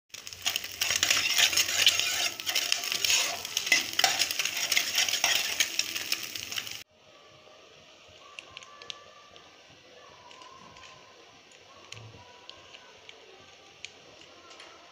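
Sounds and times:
eggs sizzling in oil: 0.1s - 6.9s
spatula scraping a pan: 0.2s - 6.8s.

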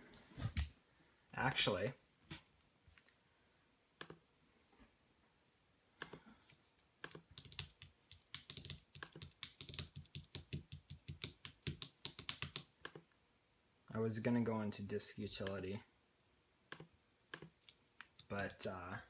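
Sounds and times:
keyboard and trackpad clicks: 16.7s - 18.6s.

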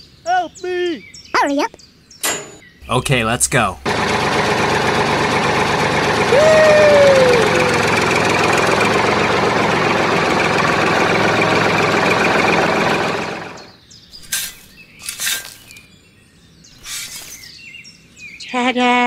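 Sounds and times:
tractor engine running: 2.3s - 13.8s
trowel scraping in sand: 14.2s - 15.8s, 16.8s - 17.6s.

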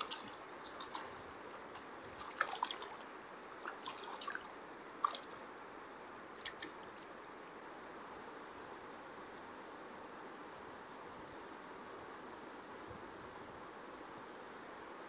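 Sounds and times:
water splashes and drips: 0.0s - 5.6s, 6.3s - 7.1s
flowing water hiss: 0.0s - 15.0s.

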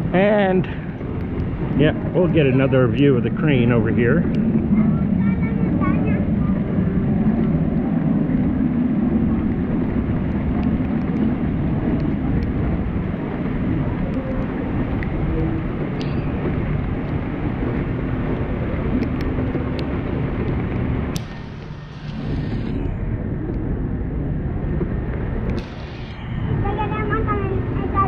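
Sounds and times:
heavy rain rumbling: 0.0s - 28.0s
raindrops ticking on camera: 9.4s - 21.8s.

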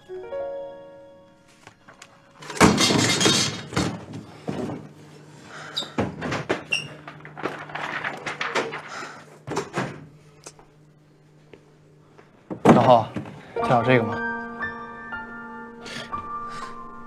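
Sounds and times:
paper rustling: 6.0s - 10.1s.

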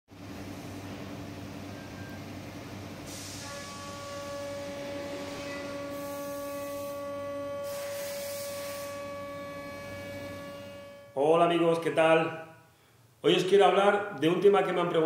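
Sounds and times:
short bursts of hiss: 3.0s - 3.8s, 7.6s - 8.9s
router spindle whine: 3.8s - 11.1s.

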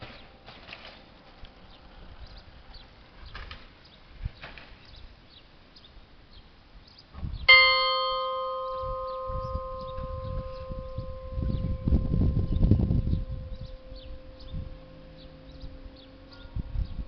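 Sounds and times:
bell ringing: 7.5s - 17.0s.

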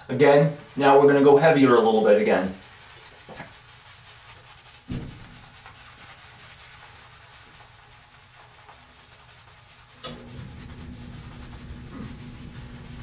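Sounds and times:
brush swishing on wet skin: 0.0s - 13.0s
soft thump: 4.9s - 5.4s.

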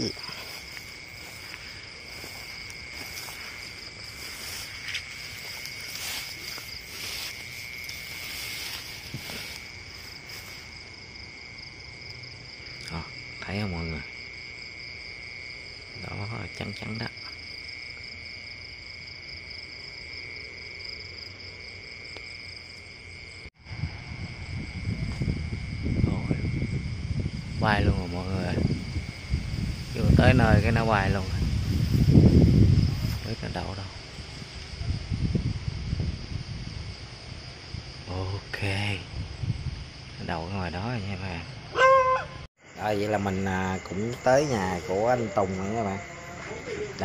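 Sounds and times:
crickets chirring: 0.0s - 47.0s
footsteps through tall grass: 0.1s - 11.0s, 28.6s - 34.8s.

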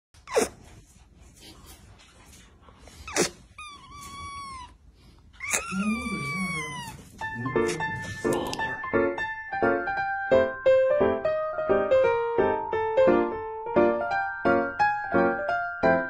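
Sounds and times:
kitten meowing: 3.1s - 4.8s, 5.4s - 8.7s
piano music: 5.9s - 16.0s.

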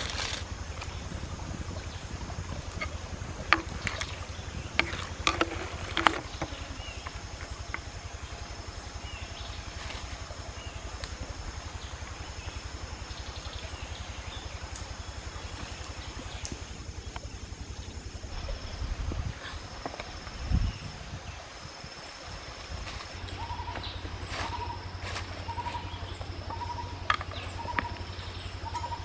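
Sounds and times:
stream rumble and hiss: 0.0s - 29.0s
sharp clicks and knocks: 2.6s - 7.9s.

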